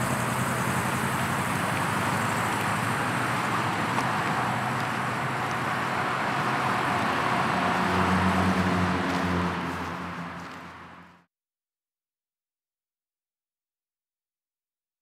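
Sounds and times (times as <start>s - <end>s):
low engine hum: 0.0s - 11.3s
vehicle road noise: 0.0s - 11.3s.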